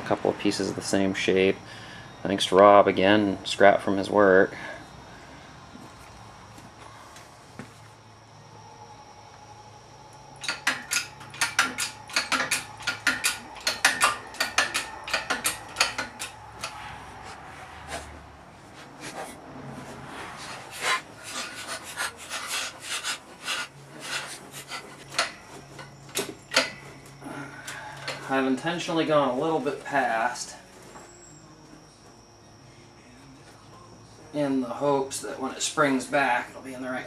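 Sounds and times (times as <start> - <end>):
metallic clicking of hydraulic press: 10.4 - 16.8, 24.1 - 26.9.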